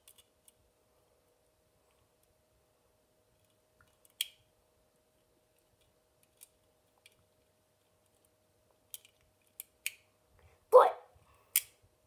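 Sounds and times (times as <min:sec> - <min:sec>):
plastic parts clicking: 0:00.0 - 0:00.6, 0:08.9 - 0:10.0
faint steady hum: 0:00.0 - 0:12.0.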